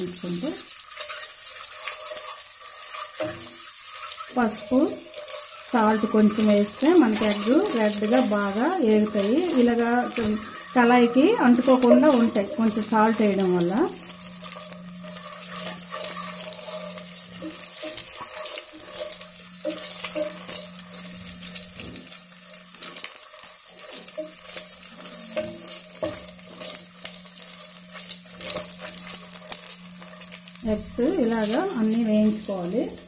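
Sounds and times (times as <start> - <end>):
eggs sizzling in hot oil: 0.0 - 33.0
spatula scraping and knocking pan: 0.9 - 32.0
steady low hum: 24.2 - 33.0.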